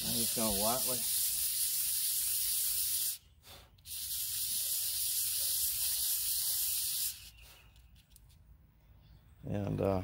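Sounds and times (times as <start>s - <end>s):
sanding hiss on sandpaper: 0.0s - 7.7s.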